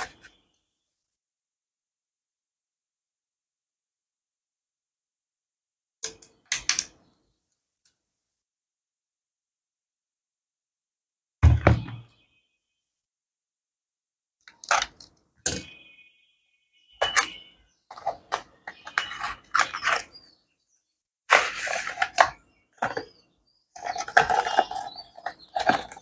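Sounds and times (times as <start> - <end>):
crinkling and rustling: 17.9 - 20.2, 21.3 - 23.1, 23.8 - 26.0.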